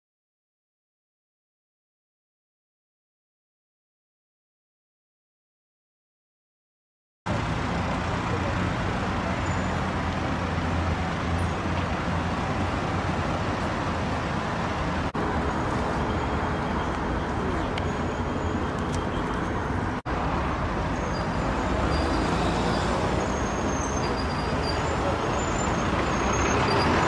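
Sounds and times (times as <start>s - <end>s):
street traffic: 7.3s - 27.0s.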